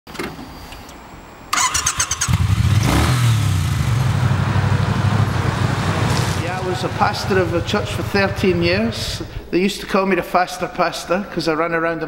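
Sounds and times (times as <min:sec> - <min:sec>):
motorcycle starter cranking: 0:01.5 - 0:02.8
motorcycle engine idling: 0:02.3 - 0:09.4.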